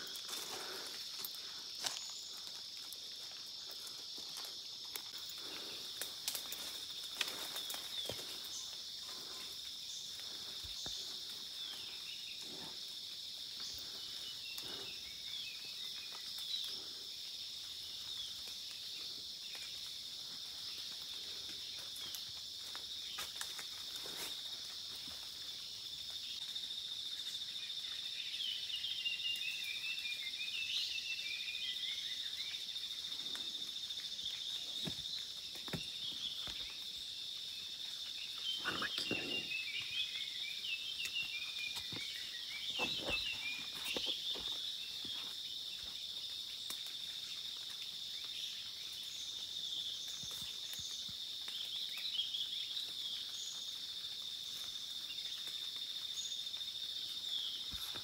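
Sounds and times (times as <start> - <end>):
insect chorus: 0.0 - 58.0
bird chirping: 38.1 - 45.3.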